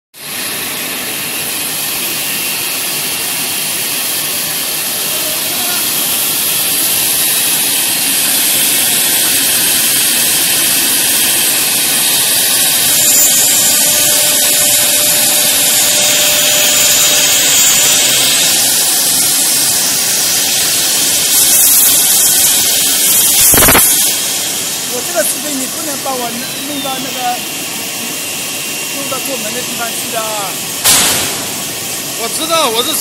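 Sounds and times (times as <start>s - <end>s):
router spindle cutting wood: 5.0s - 24.2s.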